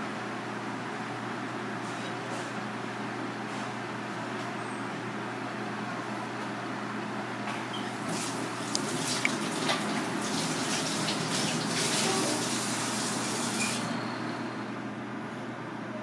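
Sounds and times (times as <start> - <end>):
water running from a tap: 8.0 - 13.9.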